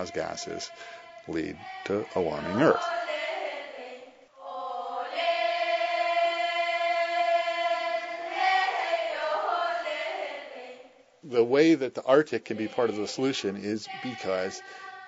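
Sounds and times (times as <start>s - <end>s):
children singing in unison: 0.0s - 11.0s, 12.6s - 15.0s.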